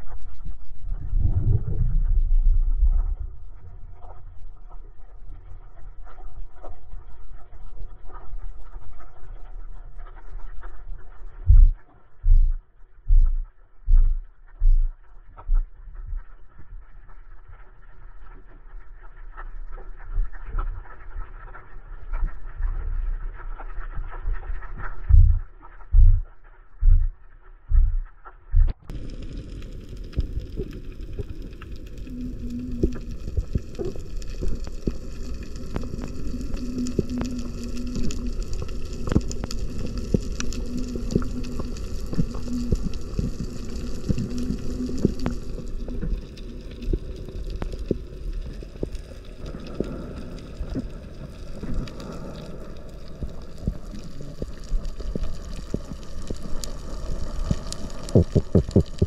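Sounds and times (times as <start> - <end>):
faint low hum: 0.0 - 6.0
underwater rumble: 0.0 - 59.0
sharp clicks and crackles: 1.8 - 59.0.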